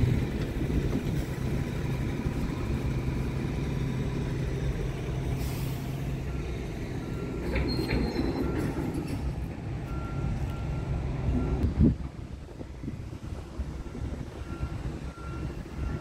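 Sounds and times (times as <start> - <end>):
diesel engine idling: 0.0 - 7.7.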